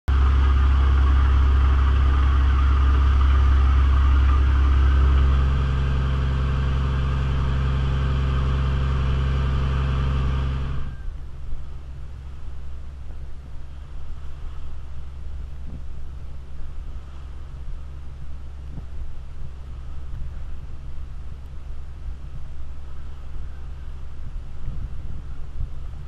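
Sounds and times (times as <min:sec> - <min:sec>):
boat engine humming: 0:00.0 - 0:26.0
faint wind noise: 0:00.1 - 0:26.0
rushing wake water: 0:00.1 - 0:26.0.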